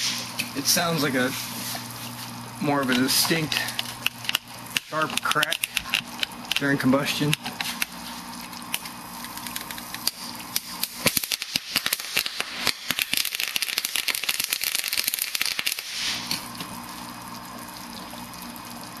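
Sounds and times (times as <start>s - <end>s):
gas burning in sharp cracks: 8.6s - 16.7s.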